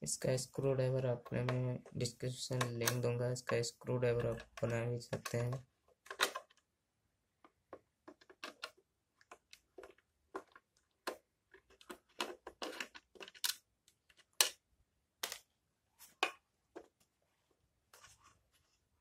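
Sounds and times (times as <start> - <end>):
plastic lantern housing being handled: 1.2 - 6.6.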